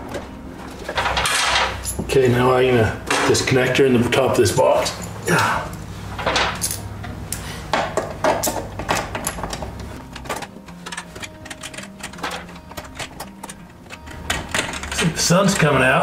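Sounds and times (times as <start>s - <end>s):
metallic clicks and rattles: 7.9s - 15.8s.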